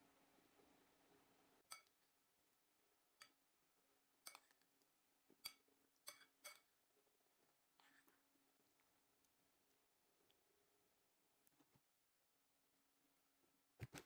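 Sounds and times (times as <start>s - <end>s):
metal utensil clinking on bowl: 1.7s - 2.0s, 5.4s - 6.7s.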